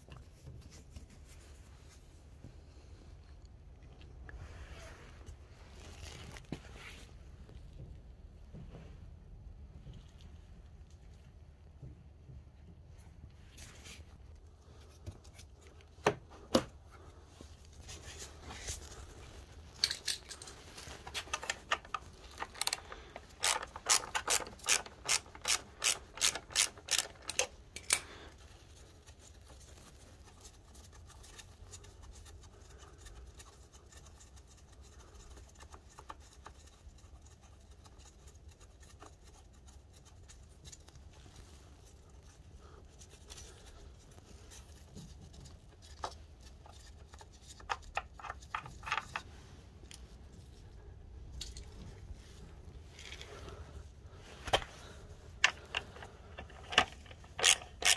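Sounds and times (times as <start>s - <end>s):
ratchet wrench clicking: 23.4s - 28.0s, 57.4s - 57.9s.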